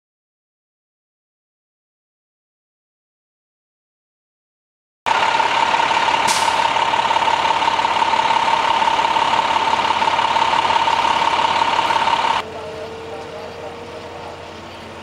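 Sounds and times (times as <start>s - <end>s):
high constant whine: 5.1s - 15.0s
vehicle engines idling: 5.1s - 15.0s
short hiss: 6.3s - 6.7s.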